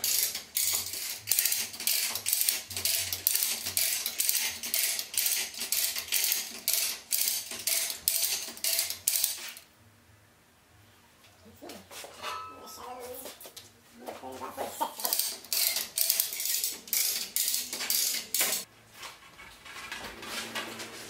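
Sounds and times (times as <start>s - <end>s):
chain hoist ratchet clatter: 0.0s - 9.6s, 15.0s - 18.7s.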